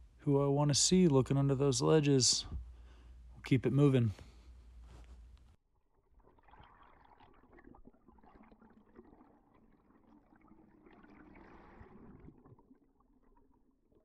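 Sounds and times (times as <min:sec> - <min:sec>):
underwater crackles and bubbles: 0:05.9 - 0:14.0.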